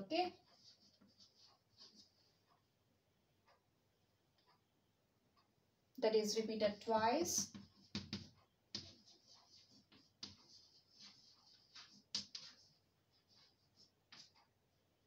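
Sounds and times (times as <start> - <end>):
chalk taps: 0.2 - 2.7, 6.8 - 14.5
chalk scratching on blackboard: 0.3 - 2.3, 7.0 - 14.5.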